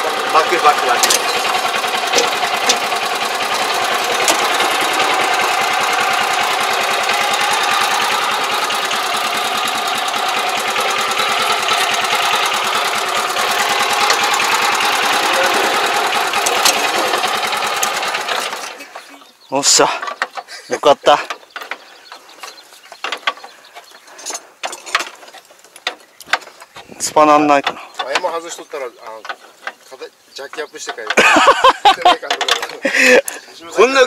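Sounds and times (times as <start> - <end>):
metal track clanking: 0.0 - 19.0, 24.2 - 33.1
small engine chugging: 0.0 - 34.0.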